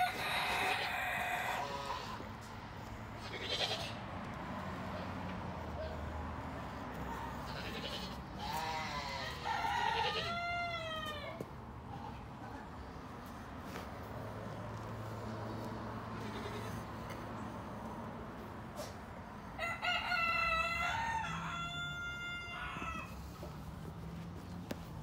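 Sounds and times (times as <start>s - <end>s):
farm animal calls: 0.0s - 2.5s, 3.2s - 4.0s, 6.9s - 12.6s, 16.2s - 16.9s.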